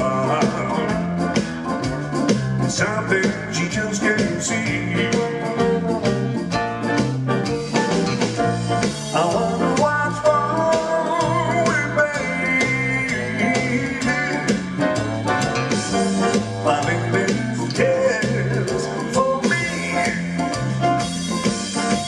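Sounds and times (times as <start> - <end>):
man singing: 0.0 - 1.4, 2.6 - 6.5, 9.0 - 15.2, 15.9 - 21.1
backing band: 0.0 - 22.0
grand piano: 0.0 - 22.0.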